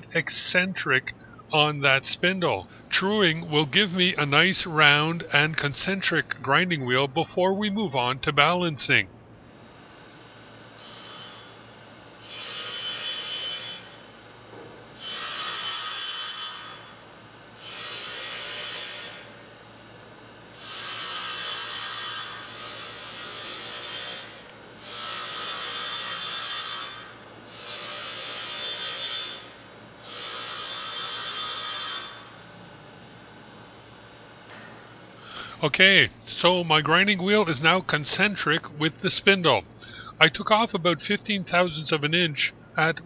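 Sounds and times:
high hissing grind of grinding wheel: 20.6s - 32.3s.

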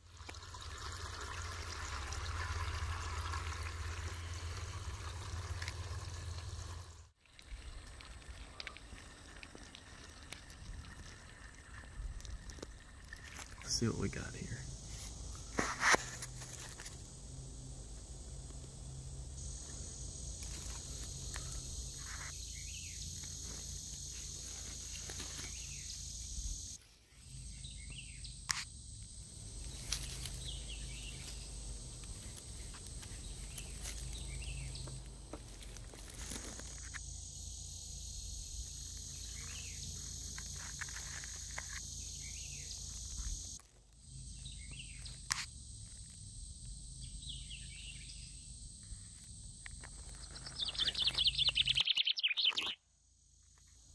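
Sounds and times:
high drone of insects: 0.0s - 53.9s
short bird chirps: 50.4s - 52.8s.

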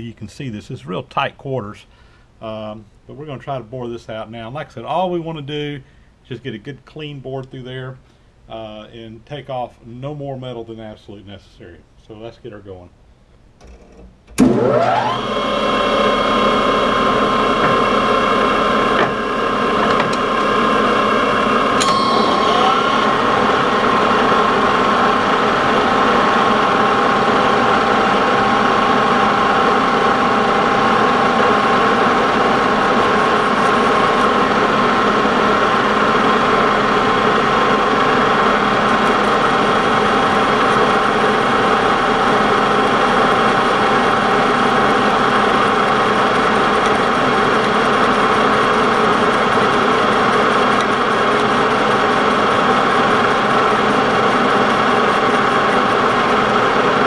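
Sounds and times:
boring bar cutting metal: 14.4s - 20.9s
metal lathe running with gear whine: 14.4s - 57.0s.

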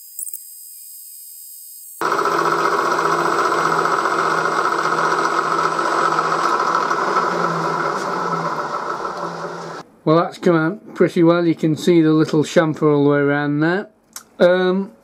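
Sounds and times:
milling machine whirring: 2.0s - 9.8s.

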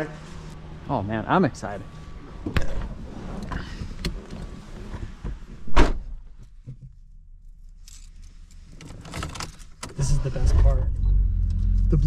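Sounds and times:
car door slamming: 5.6s - 6.2s.

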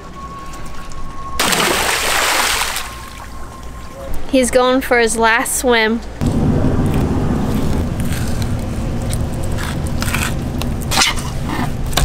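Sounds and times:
steady low rumble: 6.0s - 12.0s
knife scraping fish skin: 8.0s - 11.8s.

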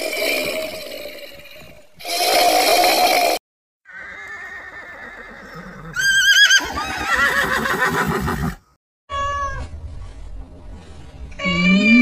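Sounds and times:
horse whinnying: 3.9s - 8.6s
cat meowing: 11.4s - 12.0s.

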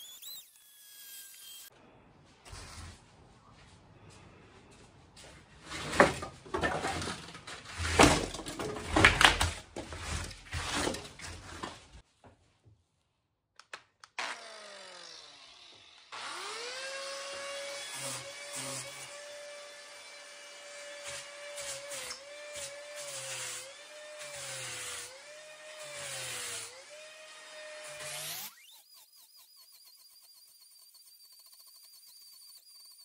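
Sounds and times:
angle grinder grinding foam: 0.0s - 1.8s, 14.2s - 33.0s.

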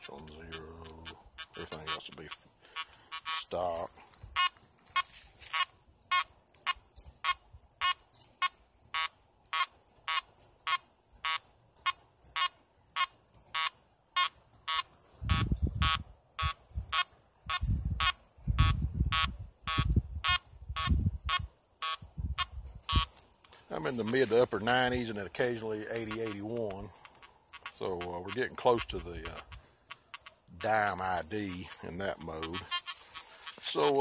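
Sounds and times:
metal detector beeping: 0.0s - 25.0s, 25.6s - 34.0s.

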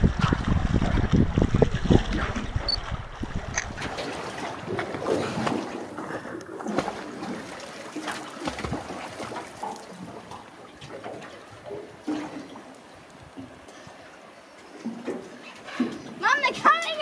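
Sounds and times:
small waves lapping against boat hull: 0.8s - 17.0s.

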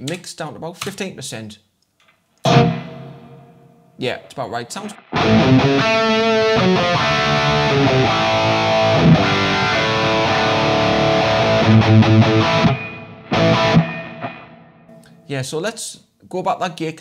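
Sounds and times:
distorted electric guitar: 2.4s - 3.7s, 4.8s - 15.1s.

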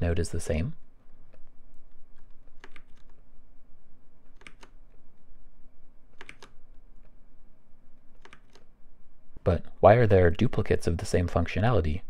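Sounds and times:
faint low hum: 0.0s - 12.0s
keyboard and mouse clicks: 1.3s - 3.2s, 4.2s - 5.0s, 6.1s - 7.2s, 8.1s - 8.7s.

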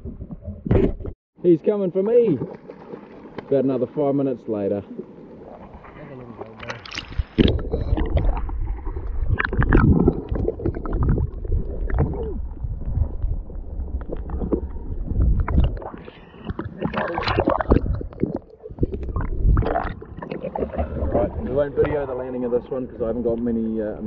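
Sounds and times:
muffled underwater sloshing: 2.1s - 24.0s
knocks and splashes: 2.2s - 3.7s, 5.0s - 12.5s, 13.8s - 22.0s.

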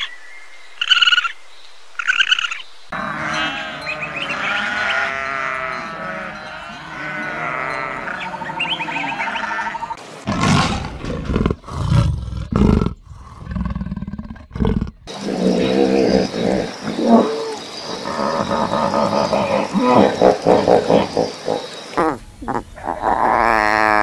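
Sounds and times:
sheep bleating: 3.0s - 10.0s
big cat growling roars: 10.3s - 21.8s.

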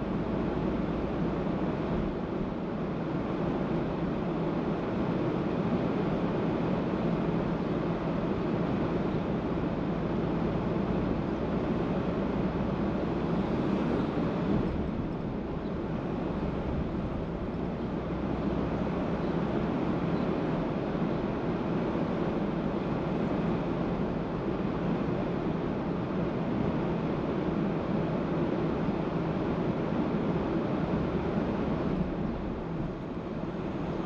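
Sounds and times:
car driving on road: 31.4s - 34.0s.

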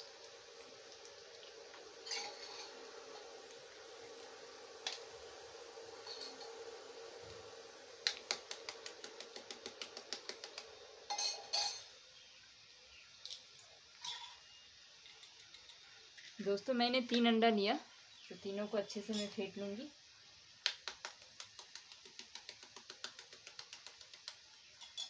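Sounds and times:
faint steady hum: 0.0s - 25.0s
eggs cracked on steel bowl: 8.0s - 11.9s, 20.6s - 25.0s.

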